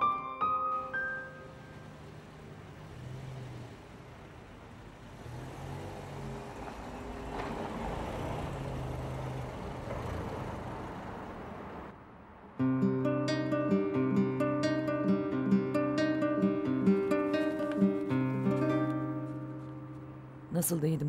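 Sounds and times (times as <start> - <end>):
car engine: 1.4 - 12.6
tyres on brick paving: 17.0 - 20.2.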